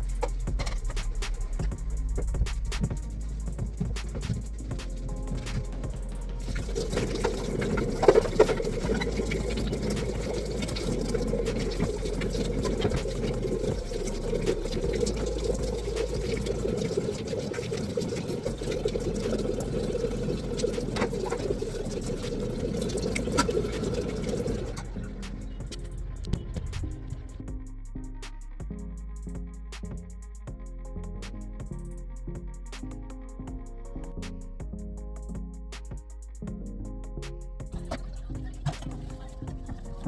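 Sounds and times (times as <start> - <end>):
tap water running: 6.4 - 25.0.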